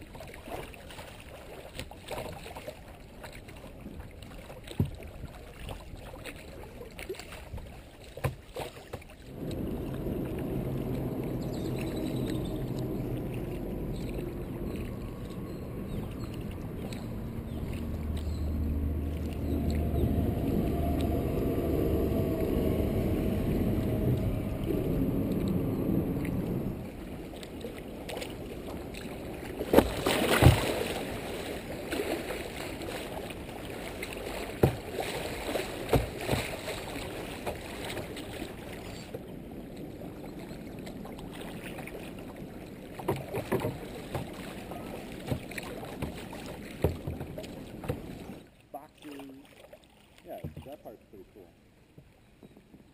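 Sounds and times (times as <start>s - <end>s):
water rushing and splashing: 0.0s - 52.1s
steady low drone: 9.3s - 30.0s.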